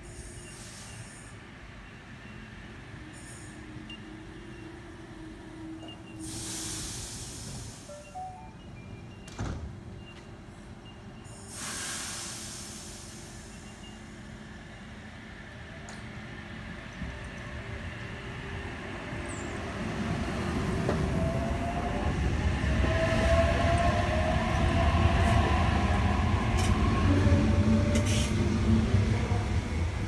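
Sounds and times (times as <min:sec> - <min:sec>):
wheels rumbling on rail: 0:12.2 - 0:30.0.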